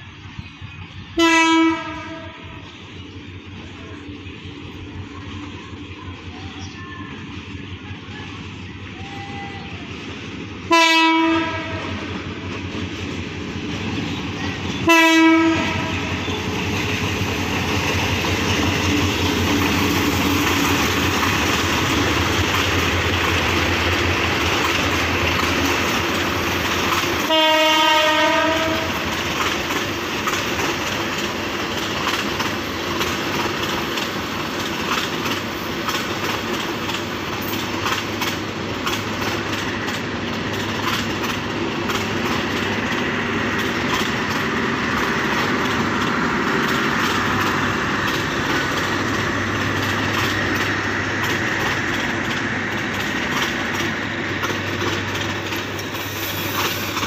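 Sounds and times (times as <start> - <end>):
train rumbling past: 0.0 - 57.0
locomotive horn blasts: 1.2 - 2.6, 10.7 - 12.1, 14.8 - 16.4, 27.2 - 29.1
wheels clicking over rail joints: 11.6 - 57.0.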